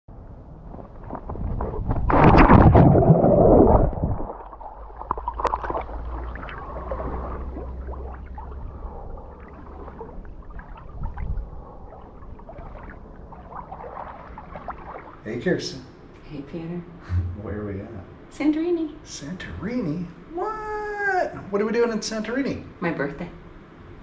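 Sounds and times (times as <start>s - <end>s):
water lapping and gurgling: 0.7s - 15.4s
pool water splashing: 0.7s - 15.6s.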